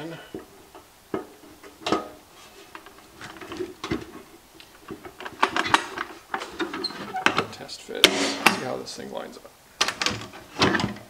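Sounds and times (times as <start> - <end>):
metal ammo can being handled: 0.4 - 8.7.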